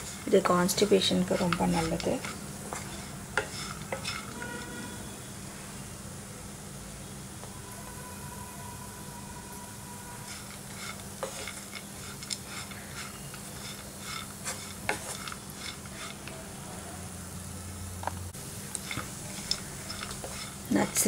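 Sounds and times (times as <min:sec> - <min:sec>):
wooden spatula scraping a pan: 0:00.0 - 0:05.0, 0:10.2 - 0:16.3, 0:18.7 - 0:21.0
light sizzle: 0:00.0 - 0:21.0.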